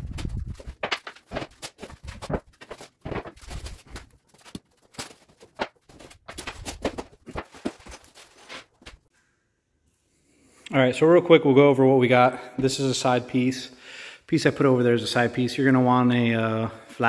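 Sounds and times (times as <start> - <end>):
footsteps: 0.0 - 9.1
plastic sheet rustling and crinkling: 0.0 - 9.1.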